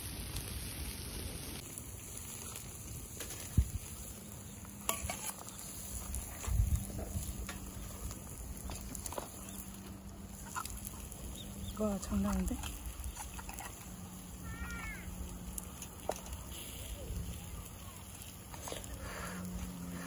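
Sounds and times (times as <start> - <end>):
scallops sizzling on grill: 0.0 - 20.0.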